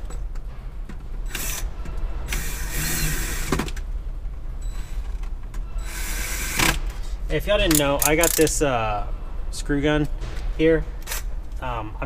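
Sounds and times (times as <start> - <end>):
screw gun clutch click: 7.7 - 8.5.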